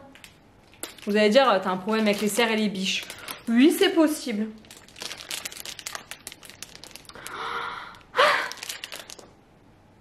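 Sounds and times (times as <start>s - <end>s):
cellophane bag crinkling: 0.6s - 9.4s
woman sighing: 7.2s - 8.6s.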